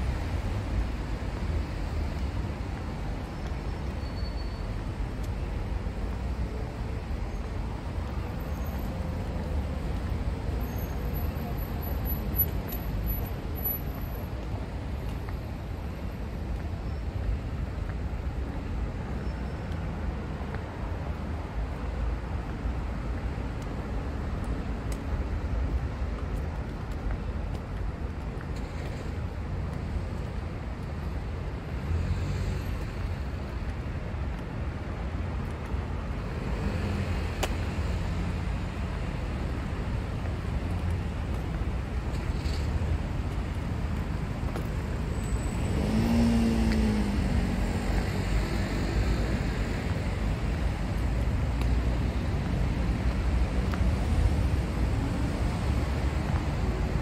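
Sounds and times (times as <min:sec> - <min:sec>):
cars driving on wet road: 0:00.0 - 0:57.0.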